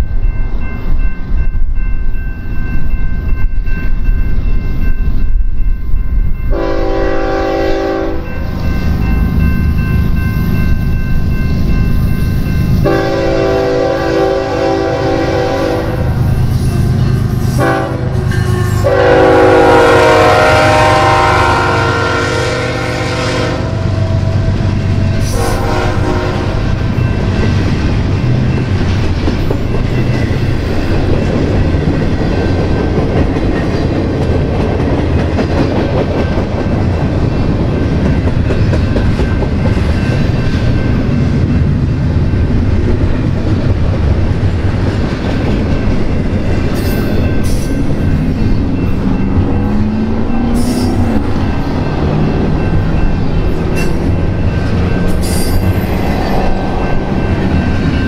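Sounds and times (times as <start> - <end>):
train wheels rumbling and clattering: 0.0 - 58.0
locomotive air horn blasts: 6.5 - 8.3, 12.8 - 16.2, 17.5 - 24.2, 25.2 - 26.7.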